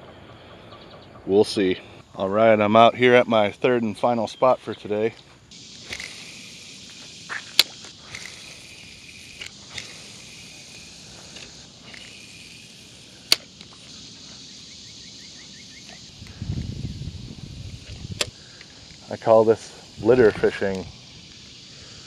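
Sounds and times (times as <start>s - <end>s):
insects droning: 0.0s - 22.0s
spinning reel clicks: 5.5s - 13.8s.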